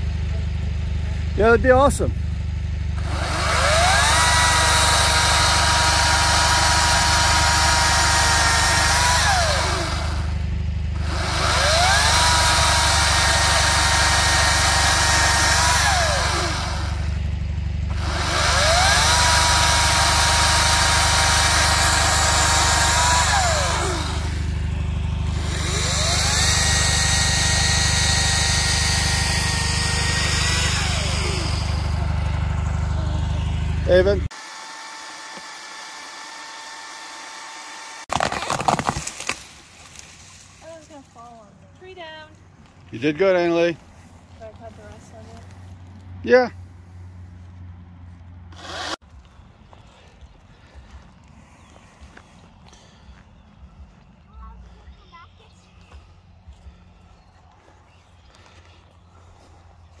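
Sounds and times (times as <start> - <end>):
low hum: 0.0 - 43.0
electric chainsaw cutting branches: 2.9 - 41.1, 48.5 - 49.2.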